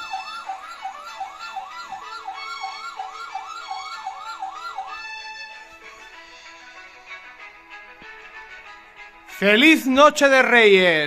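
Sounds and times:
electronic siren yelping: 0:00.0 - 0:06.1.

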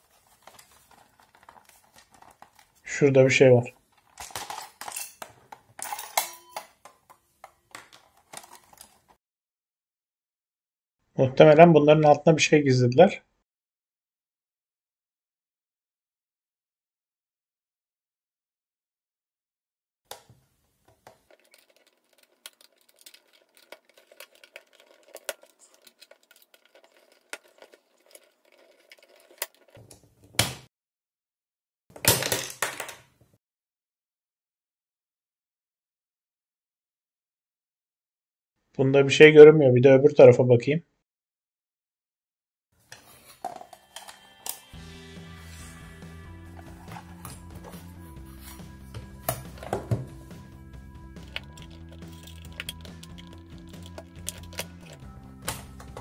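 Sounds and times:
screwdriver clicks and scrapes: 0:21.0 - 0:29.8, 0:51.2 - 0:56.0
hard plastic clatter: 0:51.2 - 0:56.0.

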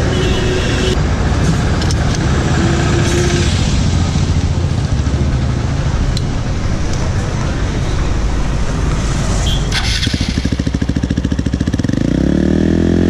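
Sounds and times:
motorcycle engine idling: 0:09.7 - 0:12.2.

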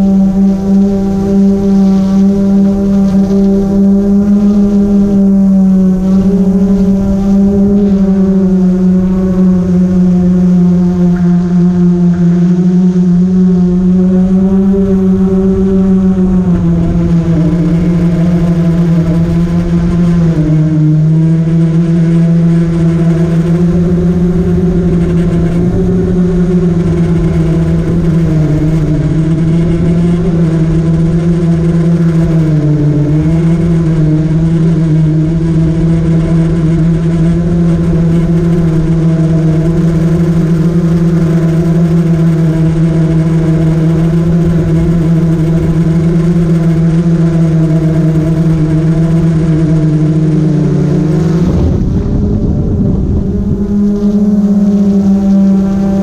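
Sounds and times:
drone propellers buzzing: 0:00.0 - 0:56.0.

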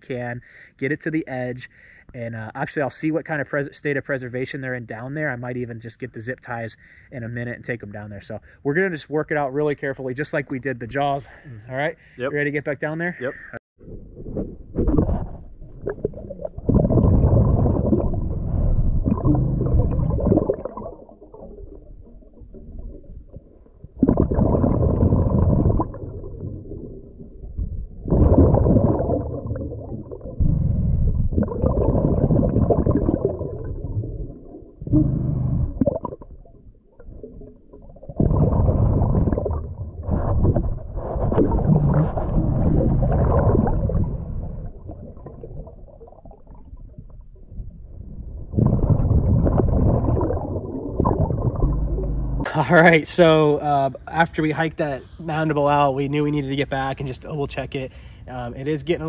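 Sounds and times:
bubbling exhaled air underwater: 0:13.8 - 0:52.8.

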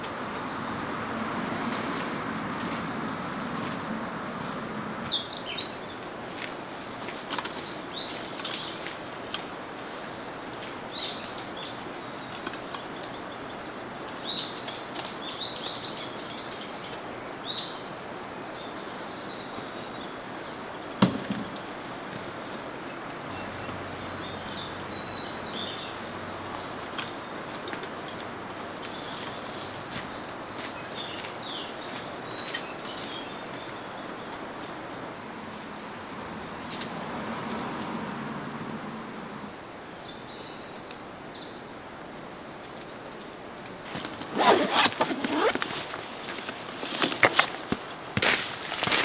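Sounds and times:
outdoor background noise: 0:00.0 - 0:49.0
small birds chirping and trilling: 0:04.3 - 0:36.8
sharp knock: 0:21.0 - 0:21.5.

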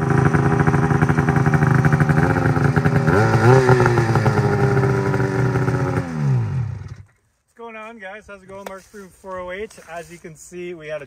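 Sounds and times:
snowmobile engine running: 0:00.0 - 0:07.1.

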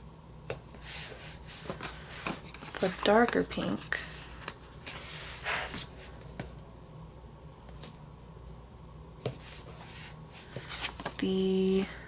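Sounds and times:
paper rustling: 0:00.8 - 0:06.5, 0:09.3 - 0:11.9.

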